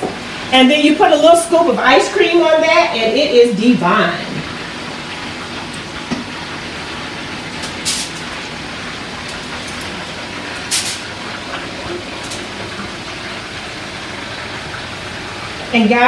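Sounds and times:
chicken sizzling in a pan: 4.5 - 16.0.

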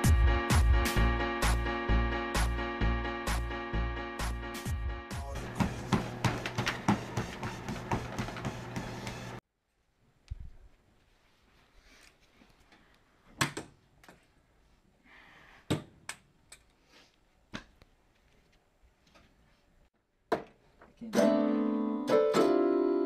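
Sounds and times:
electronic keyboard chords: 0.0 - 5.9.

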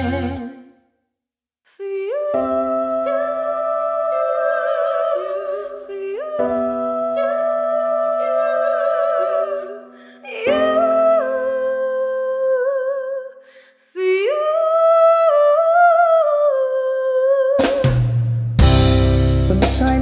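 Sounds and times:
woman singing with vibrato: 0.0 - 0.8, 1.7 - 18.0
choir humming a chord: 2.7 - 11.1.

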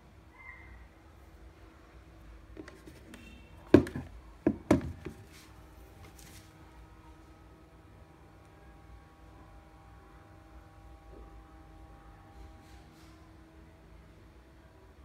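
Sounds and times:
sharp knocks on plastic: 3.7 - 5.2.

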